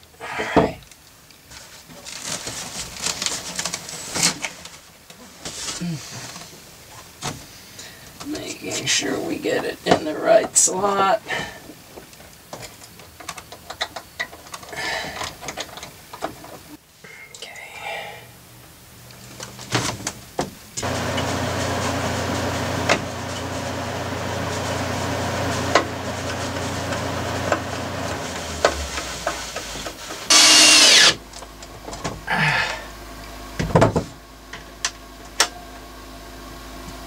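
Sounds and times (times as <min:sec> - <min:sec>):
loud high whir: 0:20.8 - 0:29.4, 0:30.3 - 0:31.2
small motor running: 0:30.3 - 0:31.2.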